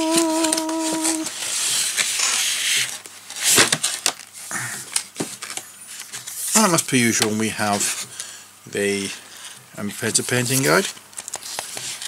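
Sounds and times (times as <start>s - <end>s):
person humming a note: 0.0s - 1.4s
cardboard and paper rustling: 0.0s - 8.3s, 8.9s - 12.0s.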